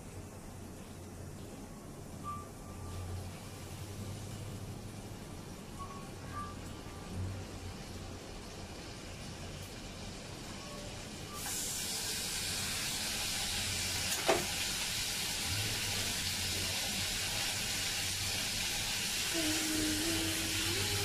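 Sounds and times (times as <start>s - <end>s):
meat sizzling in hot oil: 7.4s - 21.0s.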